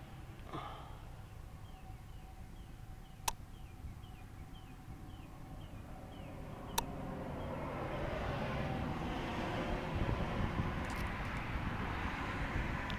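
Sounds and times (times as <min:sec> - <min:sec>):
low steady rumble: 0:00.0 - 0:12.9
sharp clicks: 0:03.2 - 0:03.4, 0:06.7 - 0:06.9.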